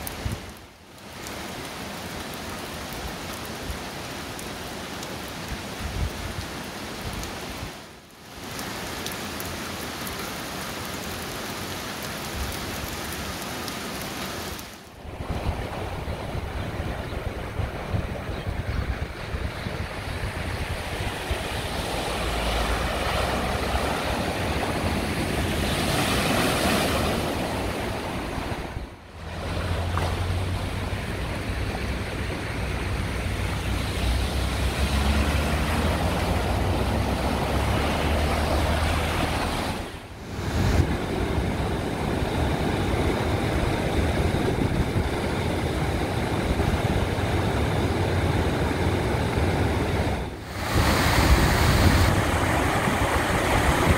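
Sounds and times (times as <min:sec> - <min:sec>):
floodwater running: 0:00.0 - 0:53.9
wind rumbling on microphone: 0:15.0 - 0:53.9.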